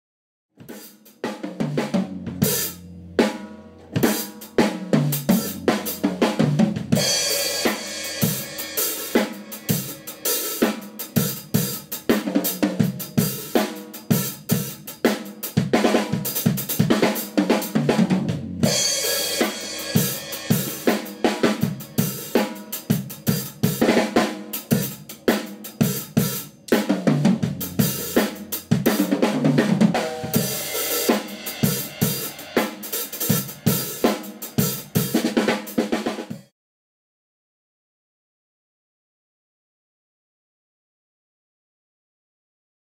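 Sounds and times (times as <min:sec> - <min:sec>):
cymbals and hi-hat: 0:00.7 - 0:17.9, 0:18.5 - 0:36.4
toms and kick drum: 0:24.7 - 0:32.6.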